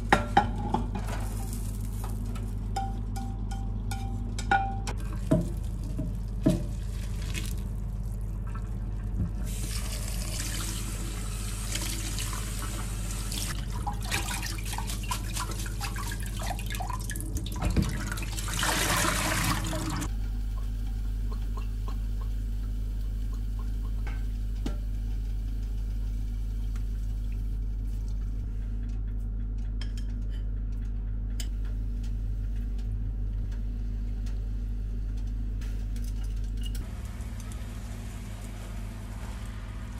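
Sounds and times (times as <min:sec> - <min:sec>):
water pouring through strainer: 0:05.0 - 0:08.6, 0:13.5 - 0:20.1
water splashing in steel sink: 0:09.5 - 0:20.1.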